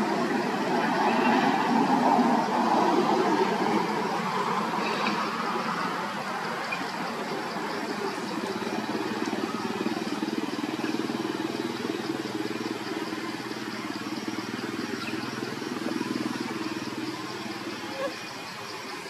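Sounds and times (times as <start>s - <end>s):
motor engine idling: 6.4s - 19.0s.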